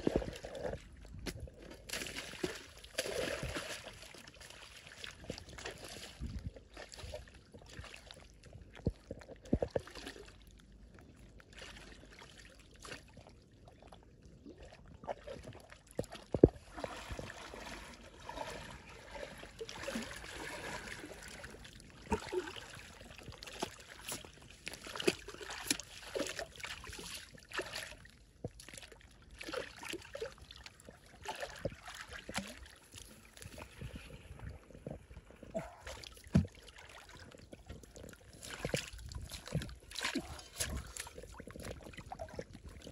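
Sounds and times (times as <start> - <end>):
sharp splashes and knocks: 0.0 - 4.2, 23.3 - 28.8, 35.5 - 42.8
stream water splashing: 1.9 - 6.3, 15.1 - 28.1, 35.2 - 42.9.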